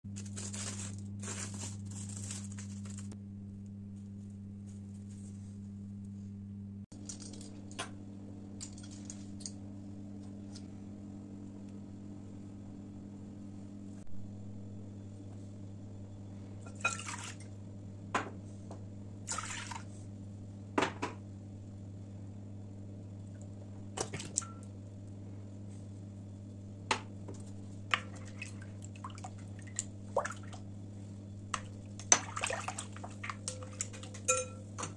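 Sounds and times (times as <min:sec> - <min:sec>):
steady low hum: 0:00.1 - 0:34.9
utensil clinking against glass: 0:33.4 - 0:34.9.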